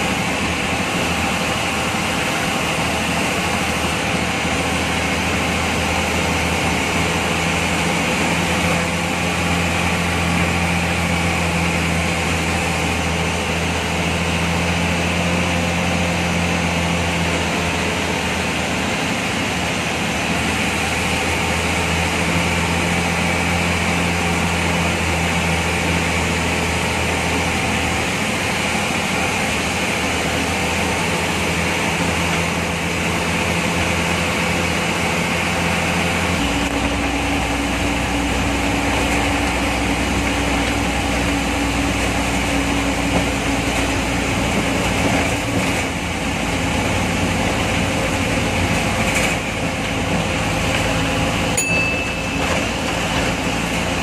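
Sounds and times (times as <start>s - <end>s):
bus diesel engine running: 0.0s - 54.0s
road noise: 0.0s - 54.0s
short high tone: 51.6s - 53.8s.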